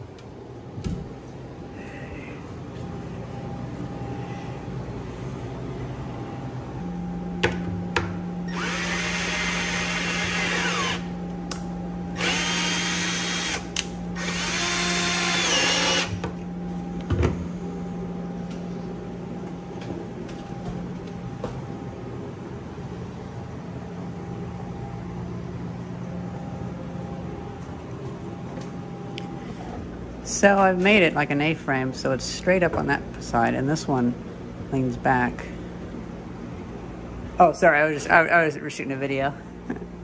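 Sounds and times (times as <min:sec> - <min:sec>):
steady low hum: 0:00.0 - 0:40.0
cordless drill motor whine: 0:08.5 - 0:11.2, 0:12.1 - 0:16.2.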